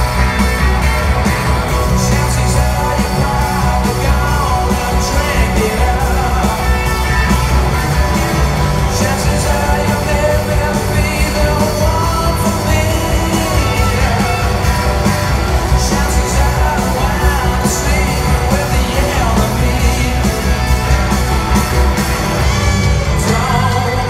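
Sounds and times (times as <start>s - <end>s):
drums: 0.0s - 24.0s
electric guitar: 0.0s - 24.0s
heavy bass: 0.0s - 24.0s
person singing: 1.6s - 7.2s, 8.6s - 14.7s, 15.6s - 20.7s, 22.6s - 24.0s.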